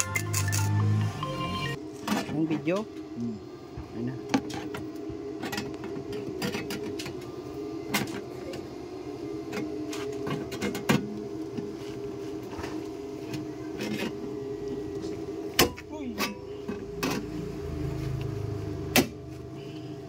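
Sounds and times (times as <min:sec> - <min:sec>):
steady machine hum: 0:00.0 - 0:20.0.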